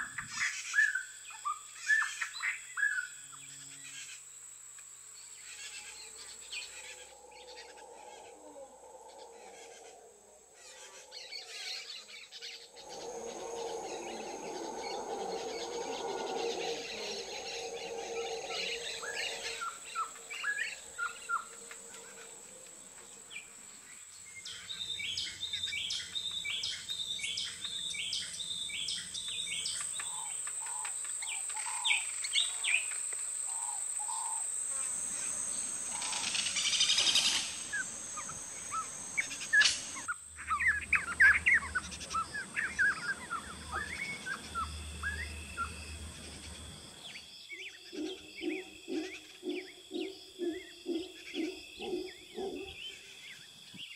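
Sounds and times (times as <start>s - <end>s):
insect drone: 0.0s - 53.9s
birds calling and chirping: 10.6s - 22.4s, 35.3s - 53.9s.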